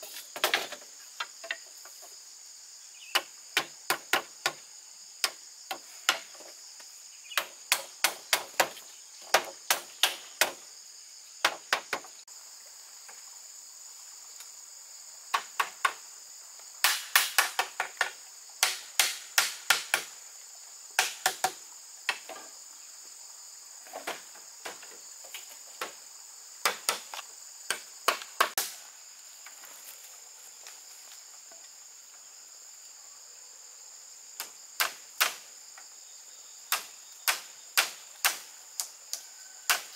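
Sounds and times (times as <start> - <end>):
high insect drone: 0.0 - 39.9
tool strikes on bamboo: 3.1 - 4.6, 5.2 - 6.5, 7.3 - 10.6, 11.4 - 12.1, 15.3 - 16.0, 16.8 - 20.2, 21.0 - 22.4, 26.6 - 28.8, 34.4 - 35.5, 36.7 - 38.9, 39.7 - 39.9.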